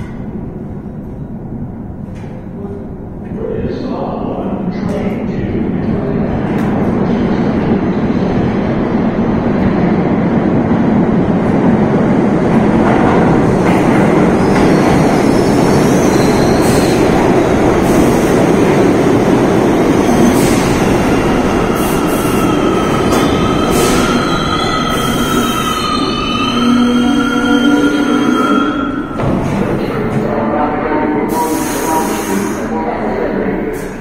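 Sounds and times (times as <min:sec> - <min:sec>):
train wheels rumbling on rail: 0:00.0 - 0:30.4.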